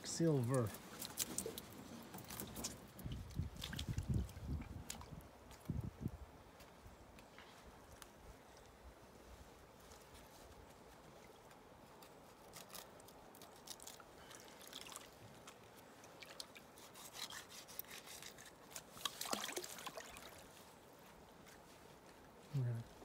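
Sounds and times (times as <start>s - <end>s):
water splashing and dripping: 0.0s - 5.7s, 13.7s - 16.7s, 18.8s - 20.5s.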